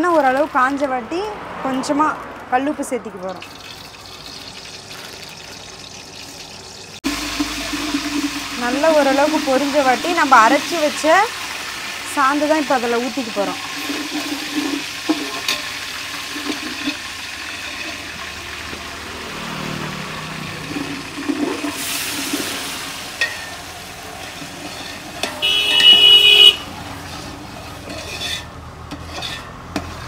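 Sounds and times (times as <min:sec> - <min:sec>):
paste sizzling in hot oil: 0:03.4 - 0:19.1, 0:20.0 - 0:30.0
loud horn honk: 0:25.4 - 0:26.8.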